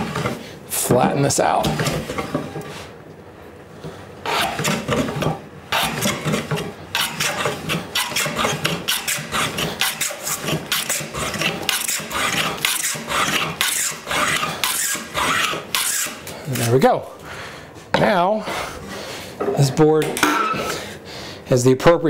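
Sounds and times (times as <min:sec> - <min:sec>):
hand plane scraping wood: 0:04.3 - 0:16.3.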